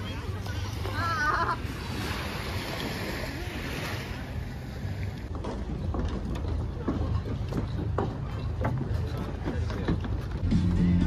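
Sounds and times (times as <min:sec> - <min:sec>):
small waves washing onto beach: 0:00.0 - 0:07.5.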